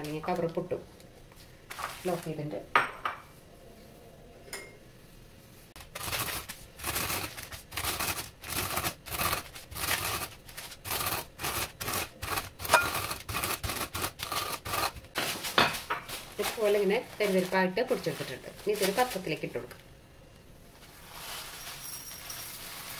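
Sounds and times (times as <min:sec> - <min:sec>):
rolling pin crushing corn flakes: 0:05.8 - 0:19.3.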